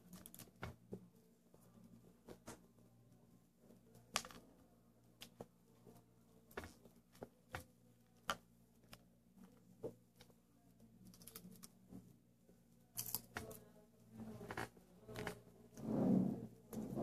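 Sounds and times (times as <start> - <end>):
popcorn crackling and clicking: 0.0 - 1.0, 3.9 - 11.8, 12.9 - 13.7, 14.3 - 15.4
popcorn crunching: 12.9 - 13.6.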